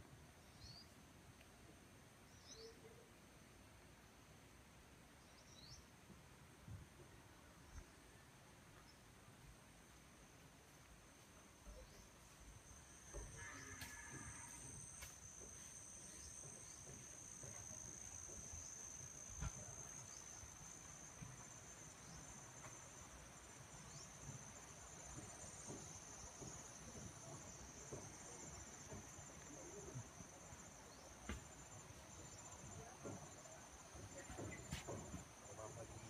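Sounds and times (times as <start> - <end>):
insects trilling: 11.5 - 36.0.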